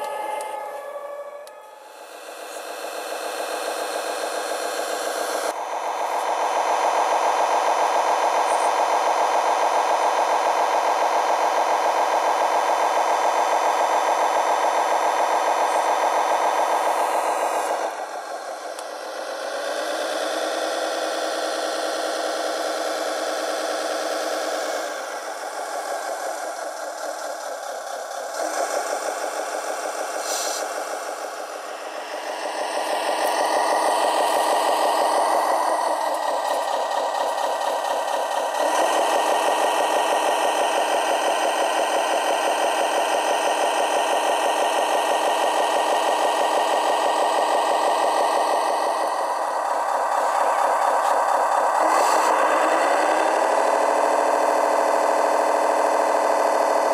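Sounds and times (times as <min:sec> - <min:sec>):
toy engine pulsing note: 0:00.0 - 0:56.9.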